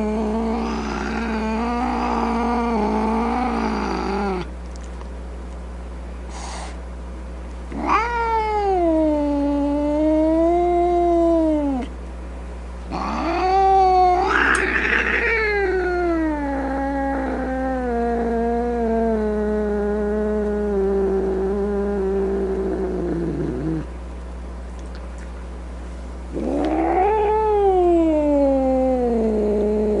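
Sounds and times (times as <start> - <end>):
cat yowling: 7.7 - 11.9, 12.9 - 21.8, 26.4 - 30.0.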